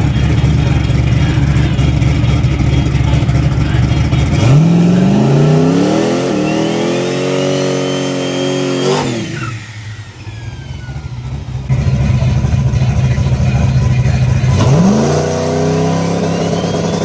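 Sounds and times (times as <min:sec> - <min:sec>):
tires spinning: 0:00.0 - 0:12.6, 0:14.0 - 0:17.0
car engine revving: 0:00.0 - 0:17.0
turbo whistle: 0:05.7 - 0:11.1, 0:15.8 - 0:17.0.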